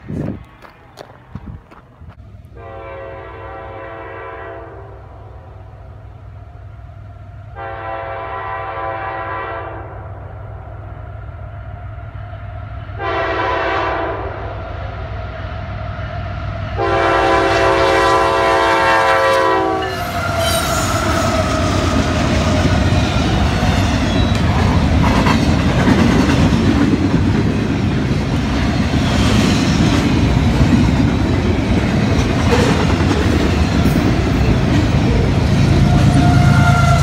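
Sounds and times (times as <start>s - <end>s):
freight train rumbling past: 0.0s - 37.0s
locomotive air horn blast: 2.5s - 5.3s, 7.6s - 10.1s, 13.0s - 14.6s, 16.8s - 21.2s, 35.8s - 37.0s
wheels clacking over rail joints: 20.2s - 36.4s.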